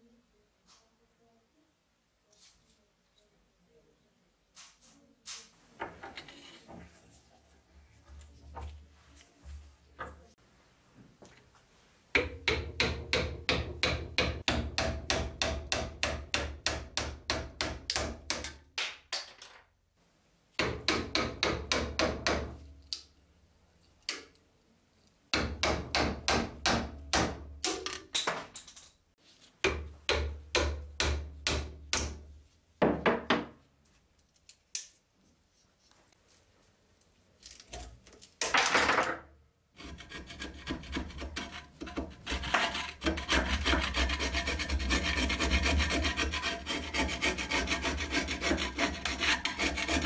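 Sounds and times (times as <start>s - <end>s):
hammer striking steel chisel: 12.2s - 18.6s.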